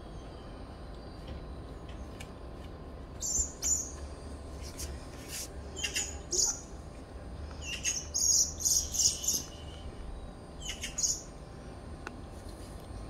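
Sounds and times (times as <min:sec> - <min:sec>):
small bird chirping: 0:03.2 - 0:04.0, 0:05.8 - 0:06.7, 0:07.6 - 0:09.9, 0:10.6 - 0:11.3.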